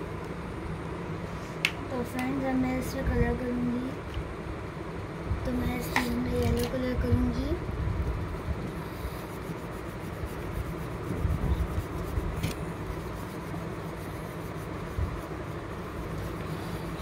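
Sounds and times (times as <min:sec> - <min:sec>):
low background rumble: 0:00.0 - 0:17.0
crayon rubbing on paper: 0:08.1 - 0:17.0.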